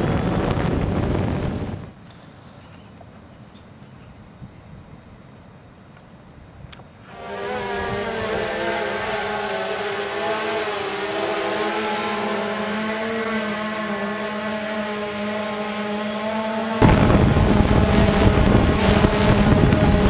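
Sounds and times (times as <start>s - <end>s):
drone propellers buzzing: 0.0s - 1.9s, 7.1s - 20.0s.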